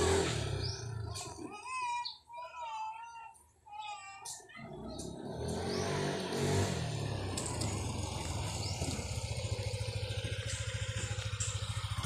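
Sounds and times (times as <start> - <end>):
motor scooter engine passing: 0.0 - 1.4, 4.6 - 12.0.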